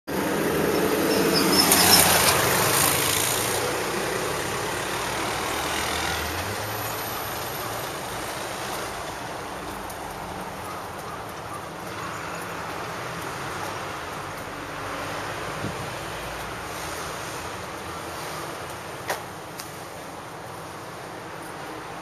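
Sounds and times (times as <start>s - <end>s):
vehicle passing close: 0.1s - 9.4s
steady traffic hum: 0.1s - 22.0s.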